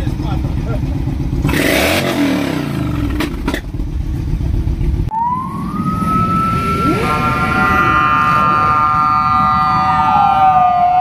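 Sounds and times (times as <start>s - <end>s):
motorcycle engine running: 0.0s - 7.6s
police siren: 5.1s - 11.0s.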